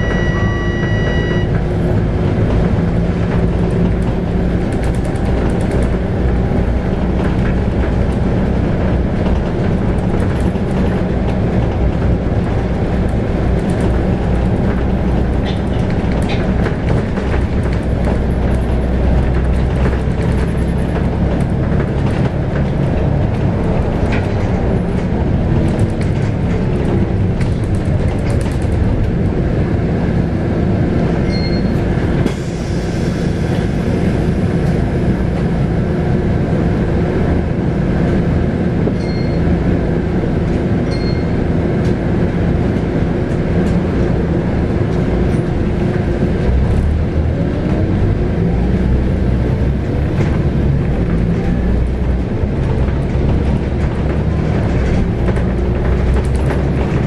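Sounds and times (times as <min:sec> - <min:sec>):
short high beeps: 0:00.0 - 0:01.6, 0:31.3 - 0:31.8
bus diesel engine running: 0:00.0 - 0:57.0.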